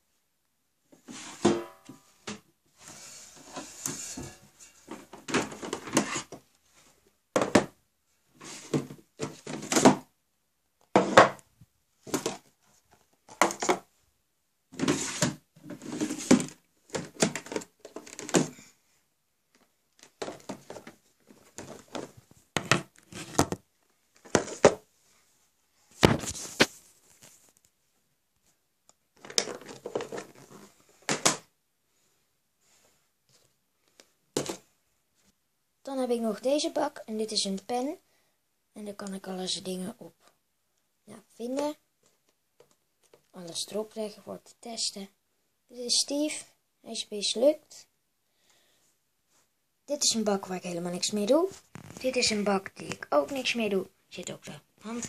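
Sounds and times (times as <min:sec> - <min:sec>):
plastic boxes clattering: 0:03.3 - 0:06.5, 0:08.4 - 0:10.1, 0:12.0 - 0:13.9, 0:14.7 - 0:18.6, 0:19.6 - 0:24.9, 0:29.1 - 0:31.5, 0:34.3 - 0:34.7.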